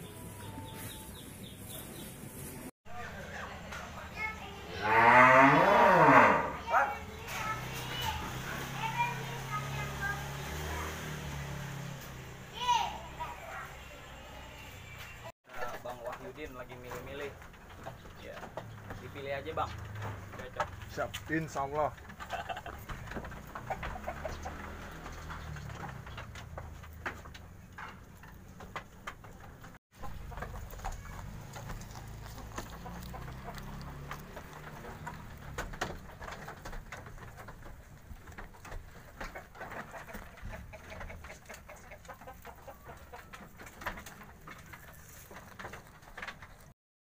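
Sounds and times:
bird calls: 0.0 - 2.7
goats chewing and pulling leaves: 0.0 - 5.0, 6.6 - 46.8.

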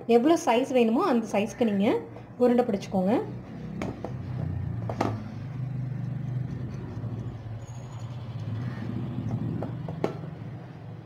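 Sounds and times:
low engine hum: 3.3 - 11.0.

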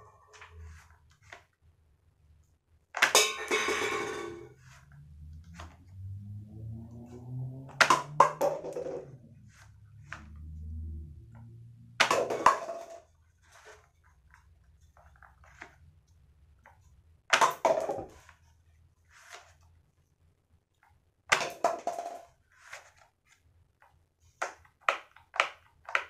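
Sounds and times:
paper cups clattering: 3.0 - 4.8.

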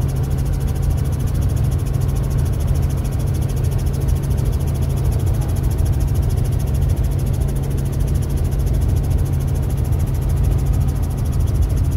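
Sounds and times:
helicopter engine and rotor drone: 0.0 - 11.9.

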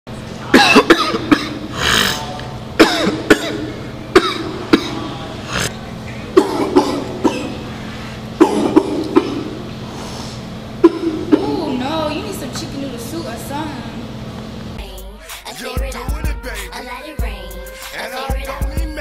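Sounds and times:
breathy hiss: 1.7 - 2.3
beatboxing drum hits: 15.3 - 19.0.

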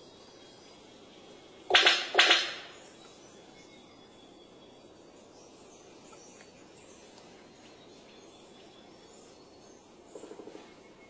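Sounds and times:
high insect chirps: 0.0 - 11.0
steady low hiss: 0.0 - 11.0.

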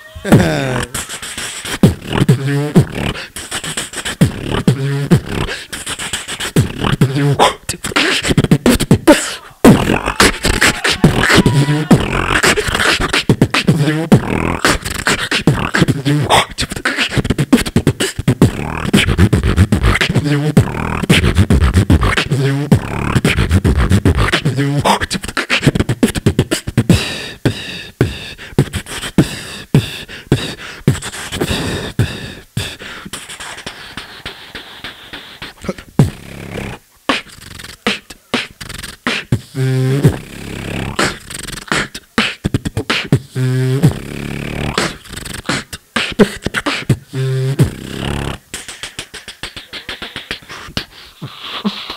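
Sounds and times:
person beatboxing into microphone: 0.0 - 51.9
buzzing bass notes: 9.7 - 10.4, 11.0 - 12.7, 13.3 - 16.3, 18.3 - 24.8.

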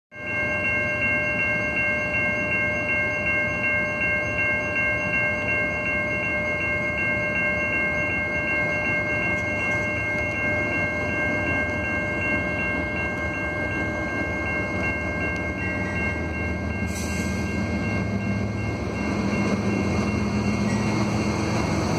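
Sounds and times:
level crossing warning bell: 0.1 - 21.9
freight train rumble: 0.2 - 21.9.

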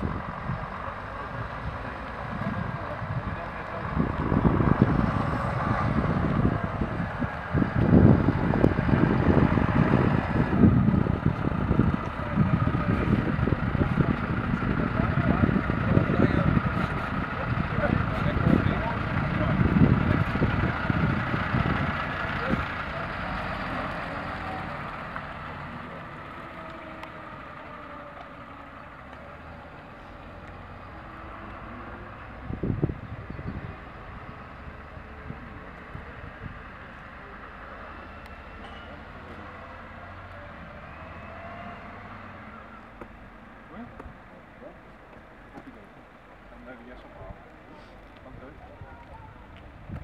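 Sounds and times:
wind buffeting microphone: 0.0 - 22.8, 32.2 - 36.8, 48.2 - 50.0
truck diesel engine: 0.0 - 50.0.

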